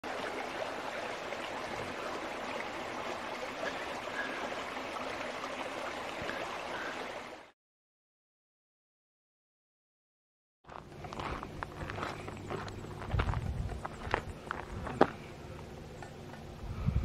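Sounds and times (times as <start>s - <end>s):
stream running water: 0.0s - 7.6s.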